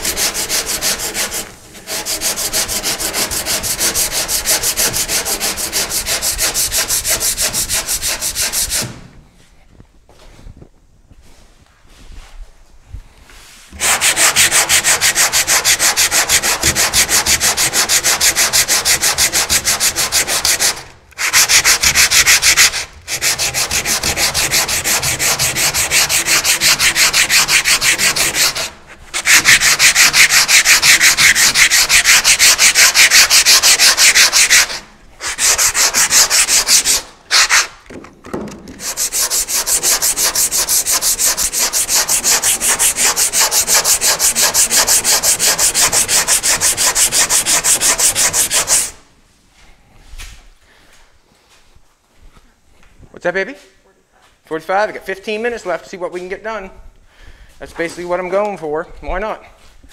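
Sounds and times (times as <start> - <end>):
sandpaper scraping: 0.0 - 9.0, 13.4 - 37.8, 38.8 - 49.0.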